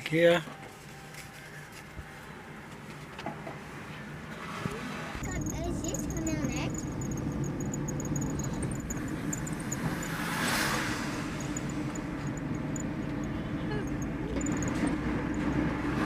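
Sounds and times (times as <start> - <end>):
car engine and tyre noise: 0.6 - 16.0
passing vehicle whoosh: 4.3 - 16.0.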